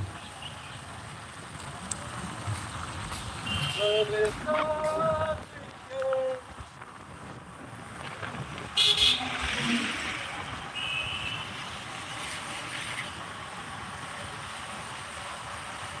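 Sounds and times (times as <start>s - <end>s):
motorcycle engine and road noise: 0.0s - 16.0s.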